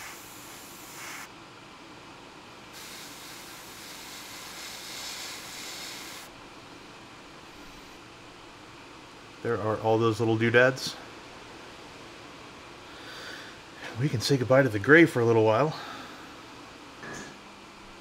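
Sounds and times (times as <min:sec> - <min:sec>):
airbrush spraying hiss: 0:00.0 - 0:01.3, 0:02.7 - 0:06.3, 0:07.5 - 0:08.0.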